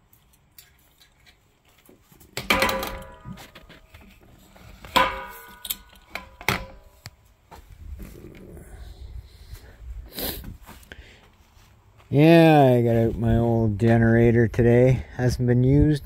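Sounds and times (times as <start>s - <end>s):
metal striking metal: 2.4s - 3.7s, 4.8s - 7.0s.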